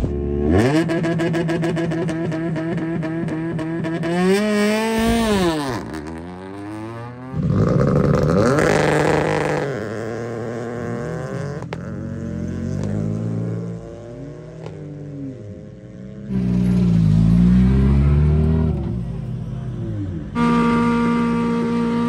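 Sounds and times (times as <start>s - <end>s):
rally cars revving and accelerating: 0.0s - 22.0s
engines idling: 11.6s - 22.0s.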